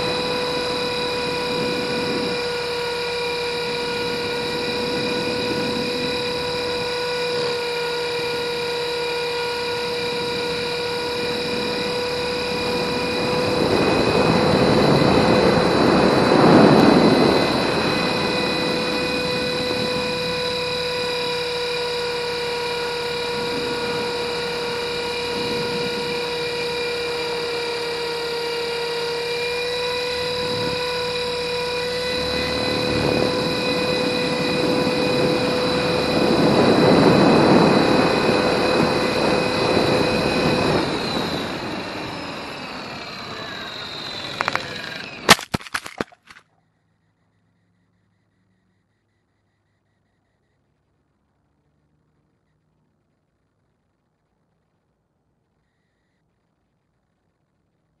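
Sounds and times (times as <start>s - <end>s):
helicopter motor and rotor whine: 0.0s - 46.4s
wind noise rush: 10.1s - 20.8s, 30.1s - 43.7s.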